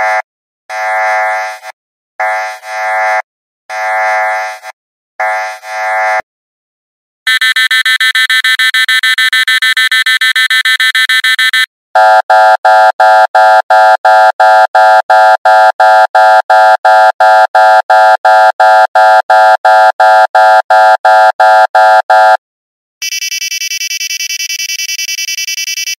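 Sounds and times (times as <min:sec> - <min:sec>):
high-pitched pulsing alarm: 0:07.3 - 0:11.7, 0:23.0 - 0:26.0
alarm beeping: 0:07.3 - 0:12.2, 0:23.0 - 0:26.0.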